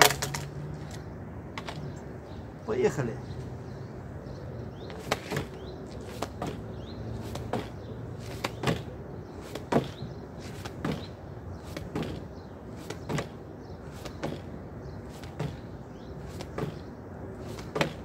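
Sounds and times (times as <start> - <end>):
gloved hands slapping wooden board: 7.2 - 8.9.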